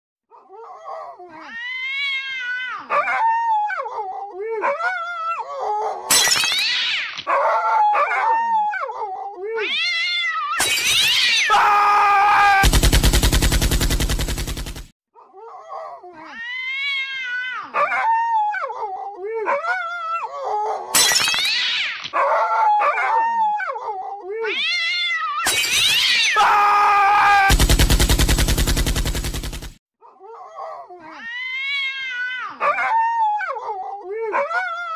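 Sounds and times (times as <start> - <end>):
cats meowing and caterwauling: 0.9 - 12.6, 16.2 - 27.5, 31.0 - 33.8.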